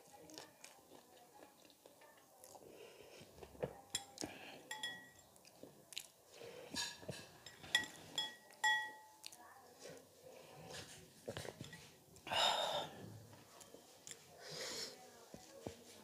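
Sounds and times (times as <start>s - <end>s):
close chewing with crunches: 0.0s - 4.4s, 5.2s - 8.2s
metal spoon clinking glass bowl: 3.9s - 5.3s, 6.8s - 9.2s.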